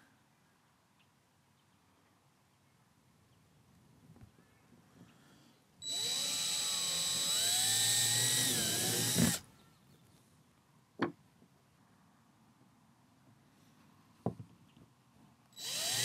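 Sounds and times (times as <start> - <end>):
power drill drilling into plastic: 5.8 - 9.4, 15.6 - 16.0.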